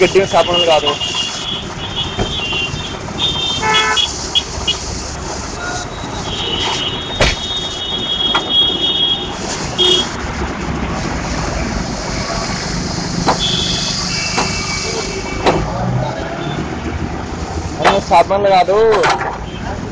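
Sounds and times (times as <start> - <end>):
vehicle horns tooting: 0.0 - 4.9, 5.5 - 10.2, 12.2 - 16.7
street traffic: 0.0 - 19.9
sharp knock: 7.2 - 7.5.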